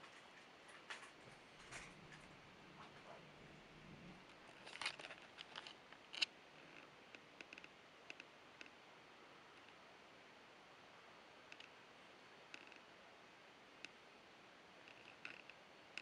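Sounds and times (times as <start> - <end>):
faint sharp clicks and ticks: 4.2 - 8.8, 11.5 - 11.8, 12.4 - 12.9, 13.8 - 14.0, 14.8 - 16.0.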